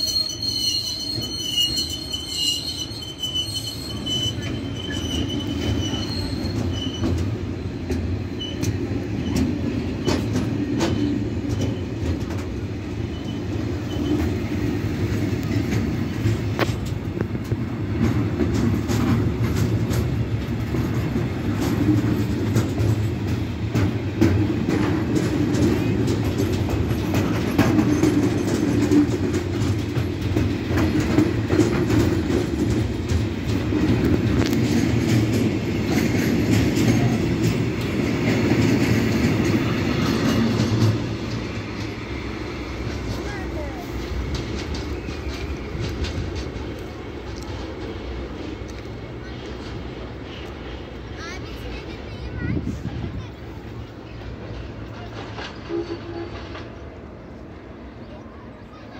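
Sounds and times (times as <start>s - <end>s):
steel wheels rumbling on rails: 0.0s - 58.9s
sharp clicks and clacks: 6.6s - 12.6s, 15.1s - 42.0s, 42.8s - 50.6s.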